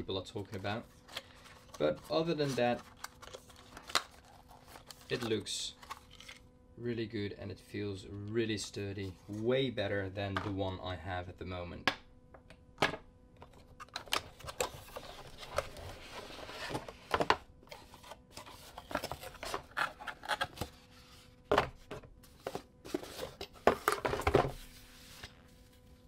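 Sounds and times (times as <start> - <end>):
cardboard rubbing and scraping: 14.6 - 21.4.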